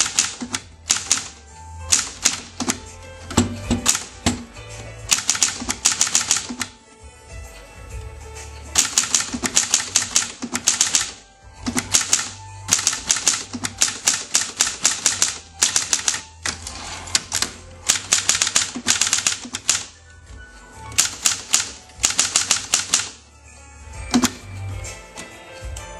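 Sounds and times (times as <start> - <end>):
manual typewriter typing: 0.0 - 4.5, 5.1 - 6.8, 8.7 - 20.0, 20.9 - 23.2, 24.1 - 24.4.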